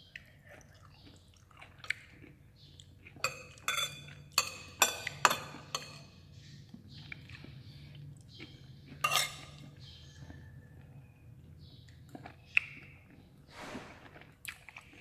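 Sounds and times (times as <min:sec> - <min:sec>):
metal spoon clinking on dishes: 0:03.2 - 0:06.1, 0:09.0 - 0:09.7.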